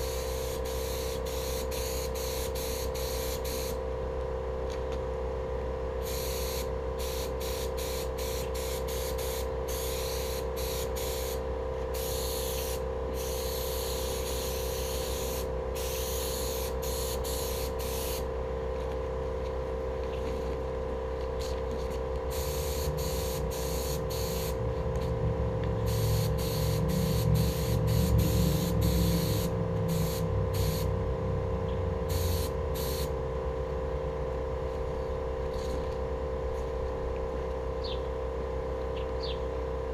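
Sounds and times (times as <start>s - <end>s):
paint spray gun hissing: 0.0s - 3.8s, 6.0s - 18.3s, 22.3s - 25.1s, 25.9s - 30.9s, 32.1s - 33.1s
steady hum: 0.0s - 39.9s
low rumble: 26.8s - 32.1s.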